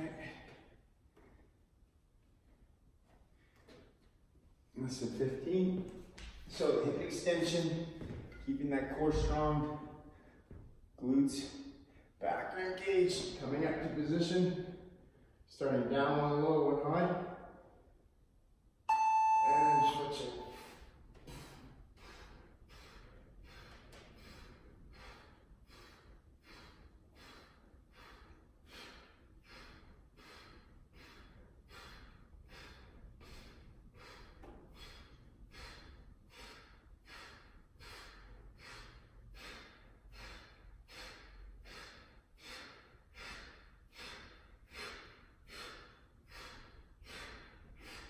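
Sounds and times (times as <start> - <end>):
man breathing hard: 20.5 - 48.0.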